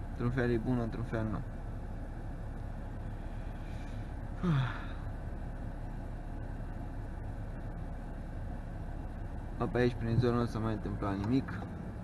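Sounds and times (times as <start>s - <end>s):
car cabin hum while driving: 0.0s - 12.0s
person sighing: 4.4s - 5.1s.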